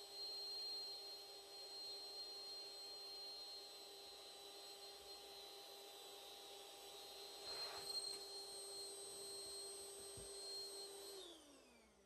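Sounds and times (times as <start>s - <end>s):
electric air blower whining: 7.3s - 9.0s.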